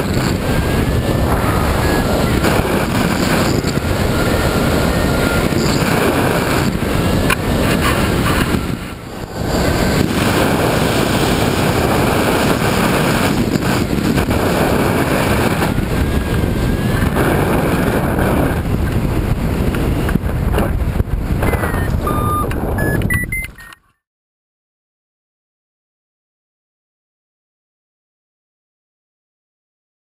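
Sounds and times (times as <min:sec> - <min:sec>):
wind rushing over microphone: 0:00.0 - 0:23.7
short electronic beeps: 0:21.4 - 0:24.0.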